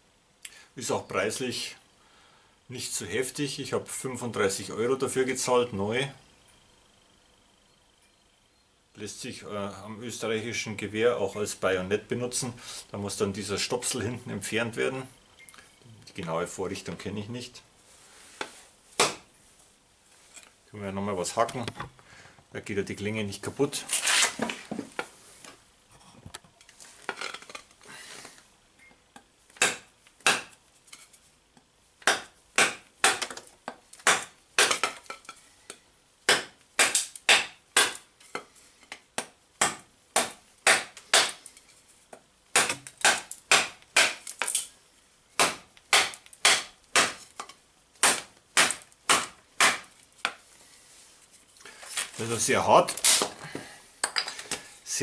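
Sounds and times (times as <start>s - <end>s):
knife chopping hard wood: 19.0s - 19.3s, 29.6s - 30.5s, 32.0s - 33.4s, 34.0s - 35.0s, 36.3s - 38.0s, 39.2s - 41.4s, 42.5s - 44.2s, 45.4s - 47.3s, 48.0s - 49.9s.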